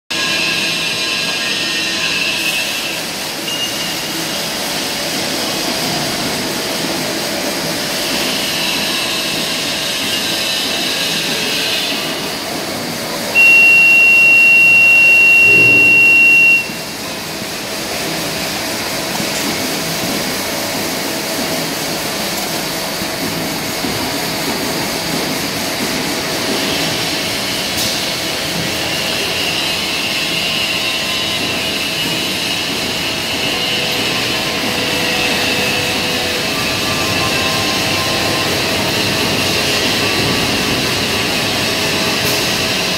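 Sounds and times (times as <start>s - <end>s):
loud high beep: 13.4s - 16.8s.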